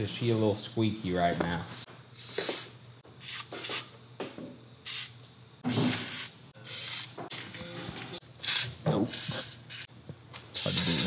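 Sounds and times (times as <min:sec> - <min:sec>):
aerosol can hissing: 0:02.2 - 0:03.9, 0:04.8 - 0:05.1, 0:10.6 - 0:11.0.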